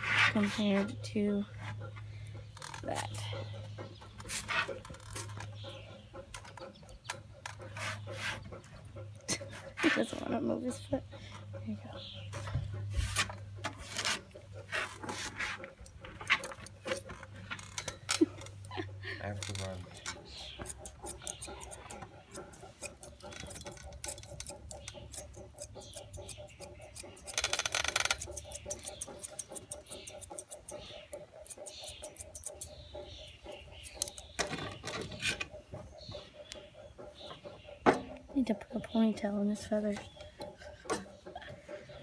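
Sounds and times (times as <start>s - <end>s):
shears snipping hair: 19.4s - 34.3s.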